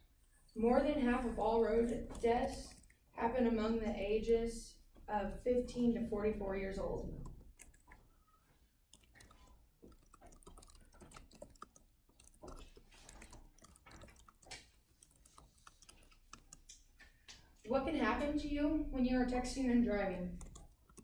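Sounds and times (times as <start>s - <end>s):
computer keyboard clicks: 7.2s - 8.0s, 8.9s - 16.9s, 20.3s - 21.0s.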